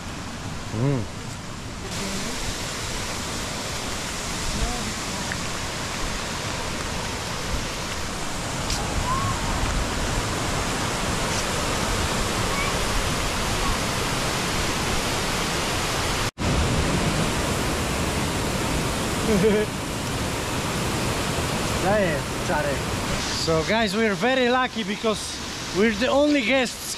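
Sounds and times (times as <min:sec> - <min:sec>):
waterfall rushing: 0:00.0 - 0:26.9.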